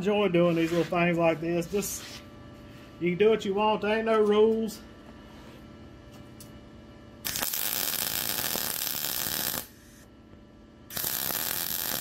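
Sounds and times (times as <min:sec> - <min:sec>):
welding arc crackling: 0:07.2 - 0:10.0, 0:10.9 - 0:12.0.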